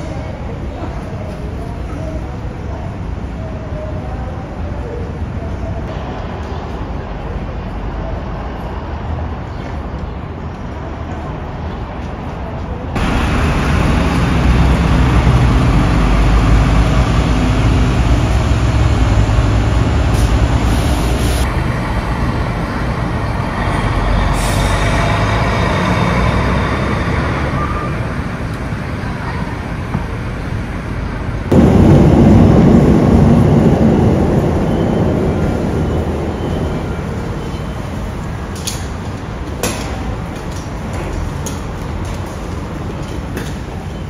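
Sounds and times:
buses and cars running: 0.0 - 44.0
road traffic: 0.0 - 44.0
low rumble: 31.4 - 36.9.

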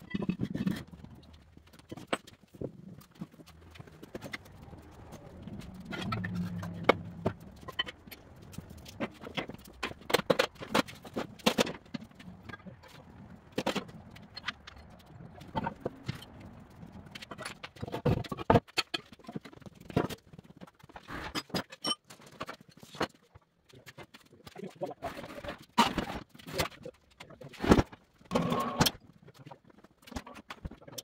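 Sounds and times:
metal clatter: 0.0 - 23.2
hand truck on concrete floor: 0.0 - 31.0.

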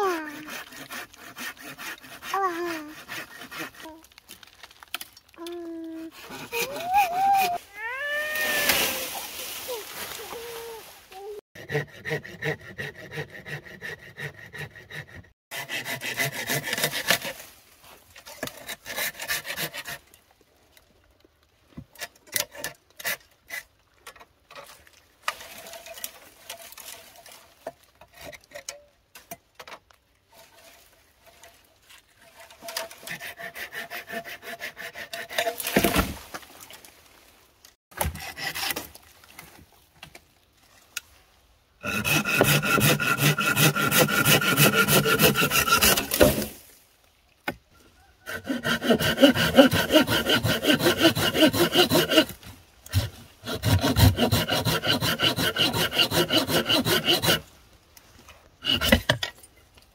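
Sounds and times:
saw rasping through bamboo: 0.0 - 4.2, 6.0 - 7.6, 11.6 - 20.0, 32.2 - 36.2, 38.0 - 38.9, 41.8 - 46.8, 48.2 - 57.6, 58.6 - 59.2.

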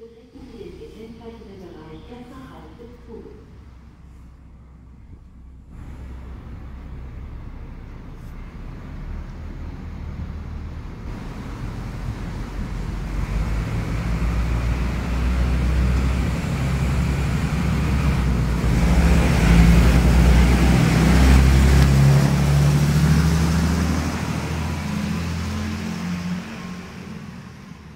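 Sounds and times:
railbus diesel engine under load: 0.0 - 27.9
train wheels on rails: 5.8 - 27.9.

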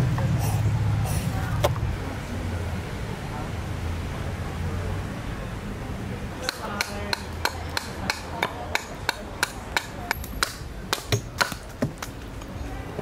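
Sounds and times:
axe chopping wood: 6.4 - 12.1.

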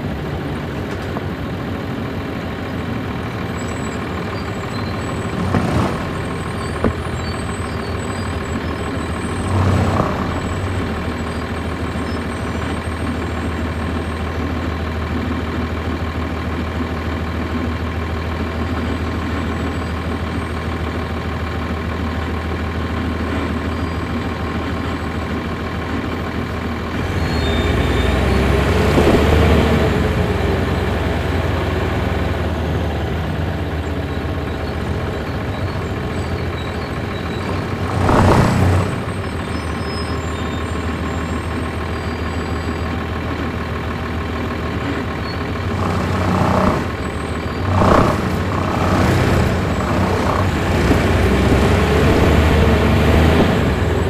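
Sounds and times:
bus diesel engine humming: 0.0 - 54.0.

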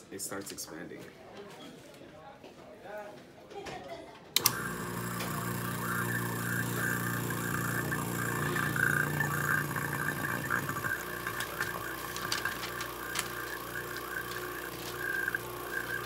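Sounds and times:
vacuum pump humming: 4.4 - 16.0.

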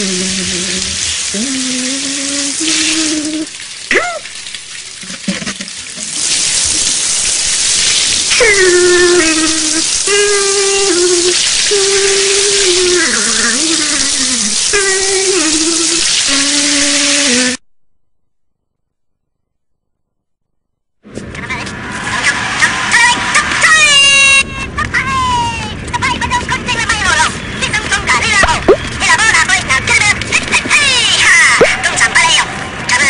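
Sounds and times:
shower water spraying: 0.0 - 17.6.

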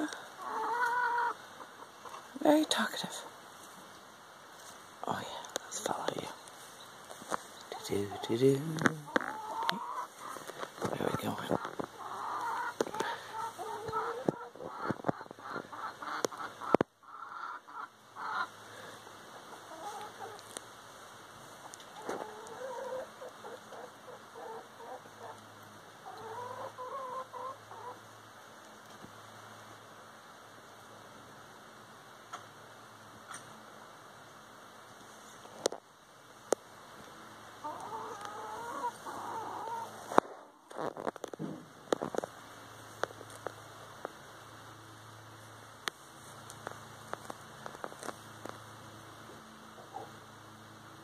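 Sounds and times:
chickens clucking: 0.0 - 4.0, 7.0 - 20.7, 21.5 - 28.2, 37.6 - 42.3, 49.7 - 50.3
faint hiss: 0.0 - 51.0.

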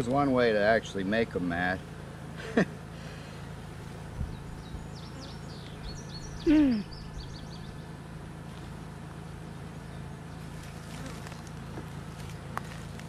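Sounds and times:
steady low hum: 0.0 - 13.0
small birds chirping: 3.2 - 12.7.

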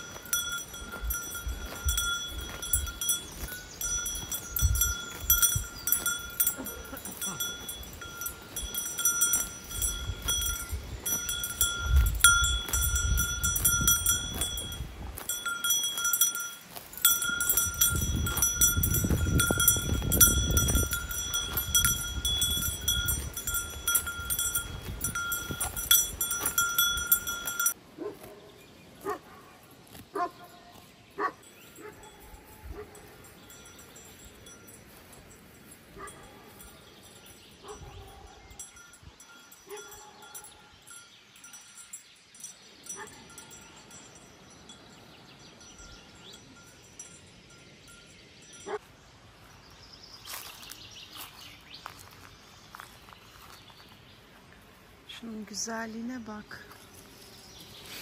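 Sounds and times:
cowbells clanking: 0.0 - 27.8, 31.4 - 48.9.

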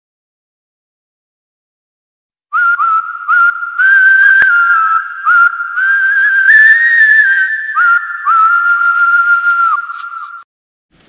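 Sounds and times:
breathy whistle-like melody: 2.5 - 10.4.

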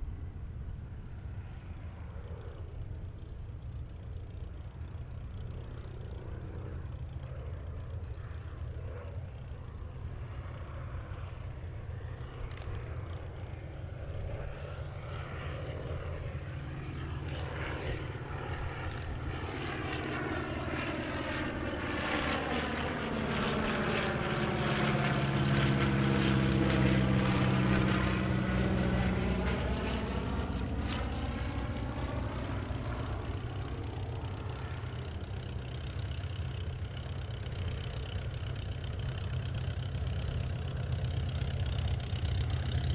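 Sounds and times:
biplane radial engine flying past: 0.0 - 42.9.

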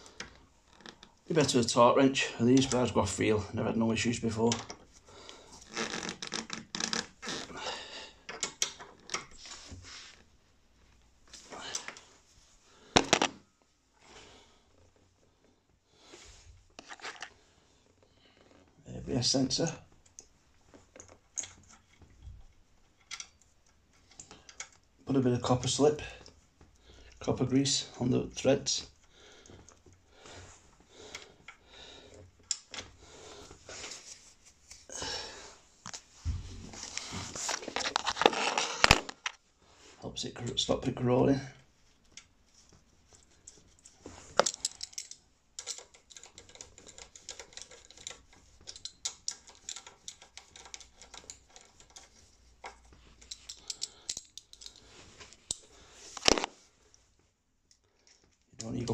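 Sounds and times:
hand tools clicking and scraping: 43.2 - 56.5.

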